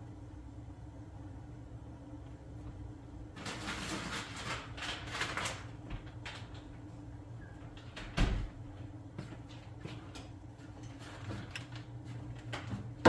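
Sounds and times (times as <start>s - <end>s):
low steady hum: 0.0s - 13.0s
rustling and knocking in kitchen: 3.3s - 13.0s.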